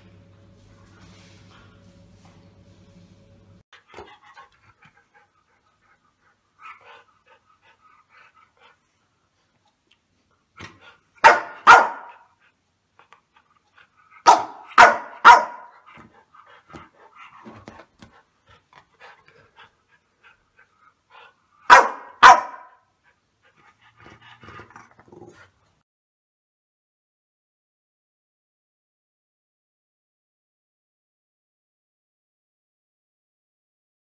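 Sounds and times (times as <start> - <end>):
dog barking: 11.2 - 12.3, 14.2 - 15.8, 21.7 - 22.8.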